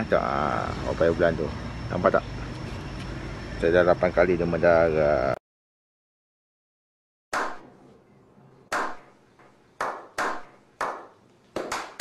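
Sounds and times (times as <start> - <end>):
slow hand claps: 9.8 - 12.0.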